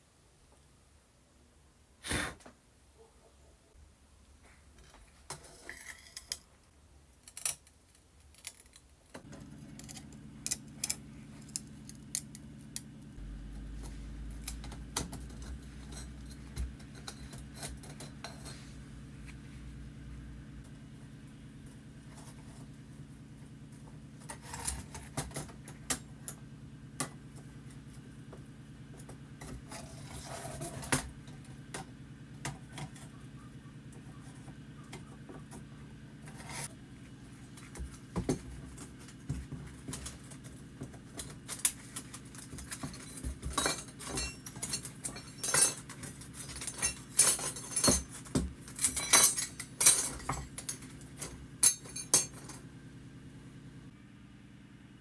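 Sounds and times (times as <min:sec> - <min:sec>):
steady low hum: 0:09.2 - 0:55.0
metal and glass parts clinking: 0:42.6 - 0:52.6.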